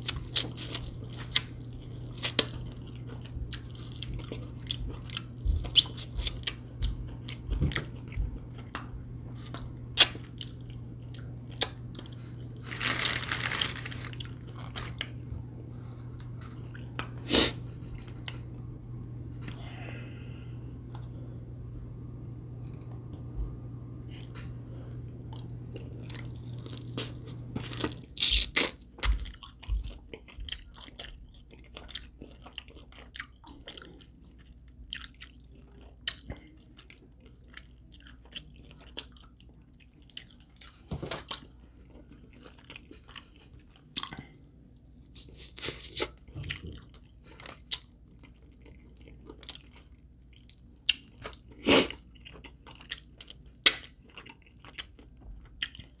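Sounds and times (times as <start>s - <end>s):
chewing crunchy chicken wings: 0.0s - 18.6s, 24.1s - 56.0s
low hum: 0.1s - 28.4s.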